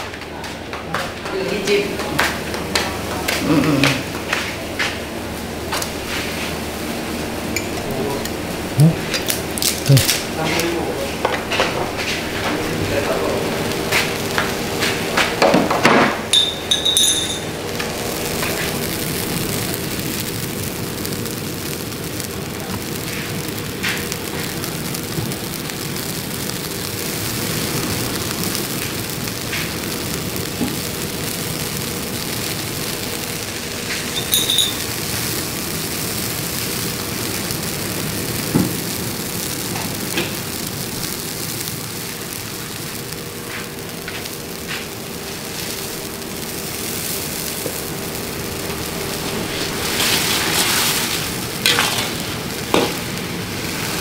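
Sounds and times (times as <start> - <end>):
short ringing clinks: 16.3 - 17.5, 34.2 - 34.8
sauce simmering and sizzling: 17.4 - 54.0.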